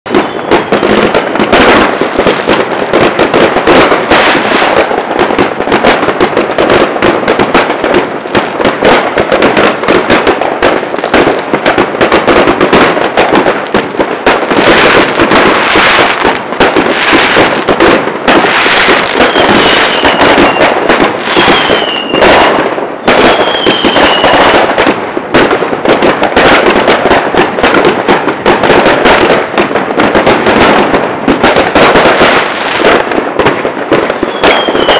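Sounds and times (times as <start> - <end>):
fireworks crackling and banging: 0.0 - 34.9
falling firework whistles: 0.1 - 3.0, 12.4 - 24.9, 33.9 - 34.9.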